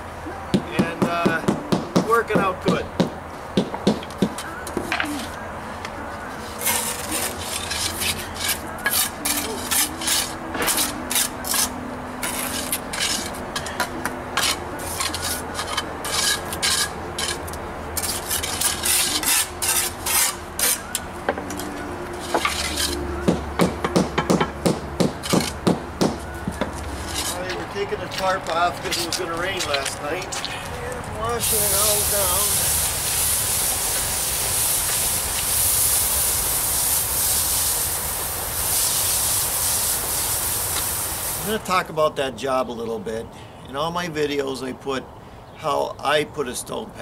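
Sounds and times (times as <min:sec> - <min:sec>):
trowels scraping wet mortar: 0:06.4 - 0:13.7, 0:14.4 - 0:21.0, 0:22.2 - 0:23.1, 0:26.8 - 0:29.9.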